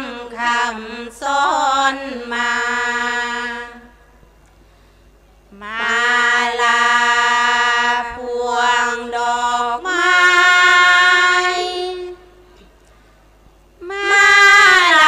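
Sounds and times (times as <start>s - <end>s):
women chanting devotional verse: 0.0s - 3.9s, 5.6s - 12.2s, 13.8s - 15.0s.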